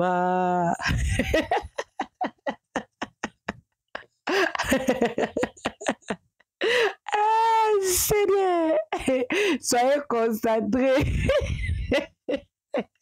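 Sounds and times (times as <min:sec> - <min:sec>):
person laughing: 0:00.8 - 0:07.4, 0:11.0 - 0:13.0.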